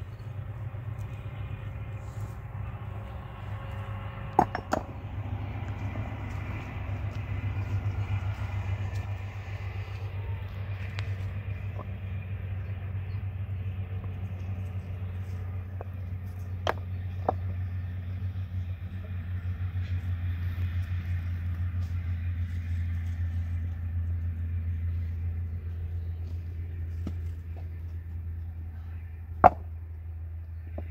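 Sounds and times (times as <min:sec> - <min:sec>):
low rumble: 0:00.0 - 0:30.9
sharp knocks: 0:04.3 - 0:04.9.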